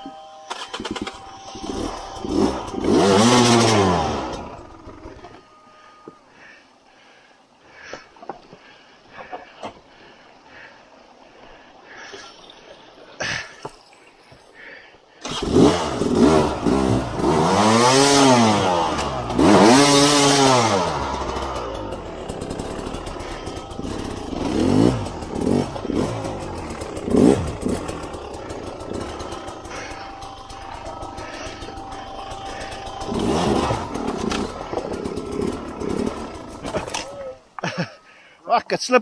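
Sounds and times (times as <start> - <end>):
dirt bike engine revving: 0.0 - 6.0, 15.2 - 38.0.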